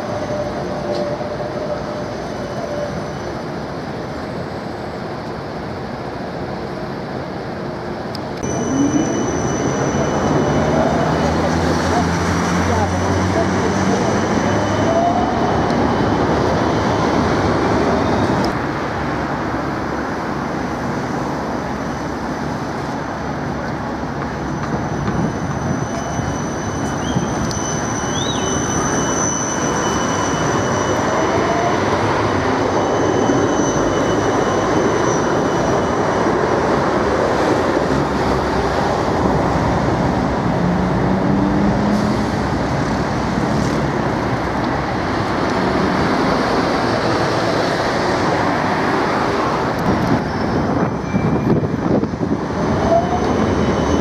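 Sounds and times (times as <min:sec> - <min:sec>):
steel wheels rolling on rail: 0:20.4 - 0:54.0.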